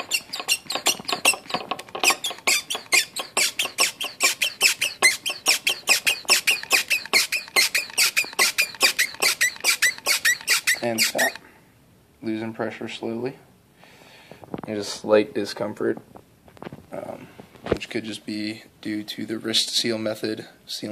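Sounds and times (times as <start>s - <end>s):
hand vacuum pump squeaking: 0.0s - 11.4s.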